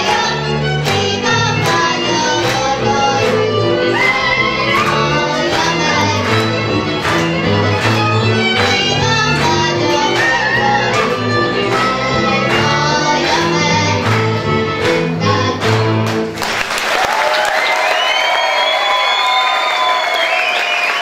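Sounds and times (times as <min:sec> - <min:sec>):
fiddle playing dance tune: 0:00.0 - 0:16.2
bowed bass: 0:00.0 - 0:16.4
applause: 0:06.2 - 0:09.5, 0:15.6 - 0:21.0.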